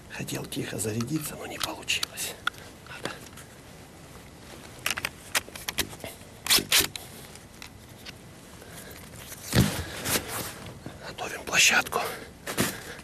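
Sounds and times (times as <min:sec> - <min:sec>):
gun handling clicks and rustles: 0:00.3 - 0:03.6, 0:04.2 - 0:10.8.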